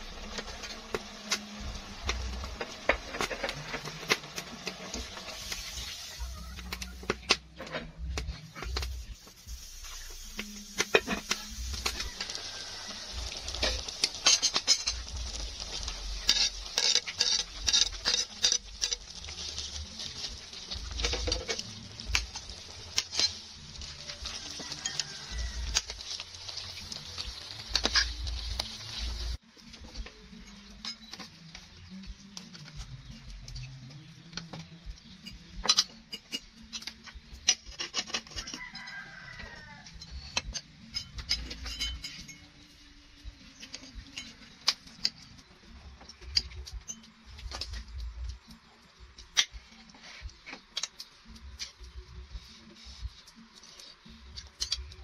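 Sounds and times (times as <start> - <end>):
pot boiling hiss: 0.0 - 55.0
metal ladle scraping pot: 7.2 - 29.4
rooster crowing: 12.0 - 13.4, 24.1 - 26.0, 38.4 - 40.1.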